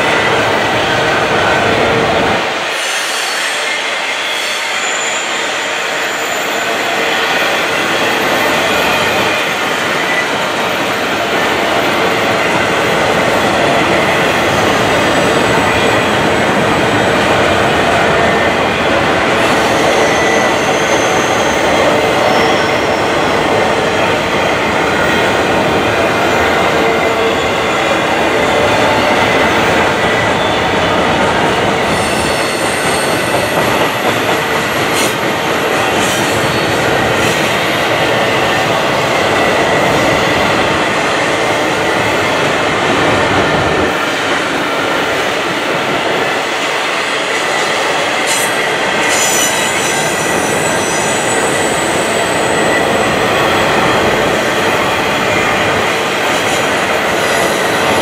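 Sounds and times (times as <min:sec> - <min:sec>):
freight train wheels rattling: 0:00.0 - 0:58.0
wheel squeals: 0:19.4 - 0:23.2, 0:32.0 - 0:35.3.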